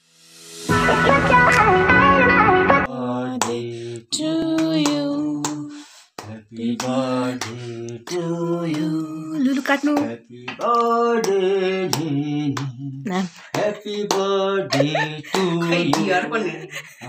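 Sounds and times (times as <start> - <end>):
guitar music: 0.7 - 2.9
women singing unaccompanied: 2.9 - 5.7, 6.8 - 10.9.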